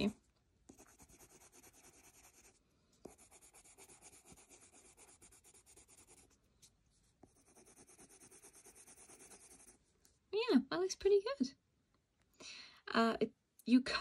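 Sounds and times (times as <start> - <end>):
coloured pencil scratching paper: 0.7 - 6.4, 7.2 - 9.8.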